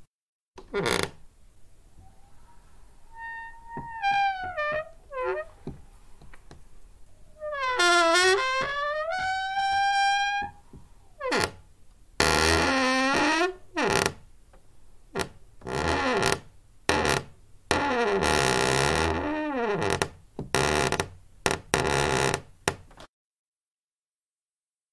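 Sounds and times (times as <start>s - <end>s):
door hinge creaking: 0.6s - 1.2s, 3.1s - 5.8s, 7.4s - 10.6s, 11.2s - 11.6s, 12.2s - 14.2s.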